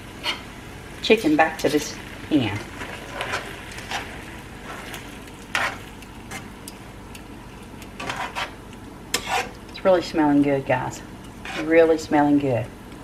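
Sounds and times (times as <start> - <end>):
sauce sizzling in a skillet: 0.0 - 9.6
utensil scraping and tapping pan: 7.8 - 9.6.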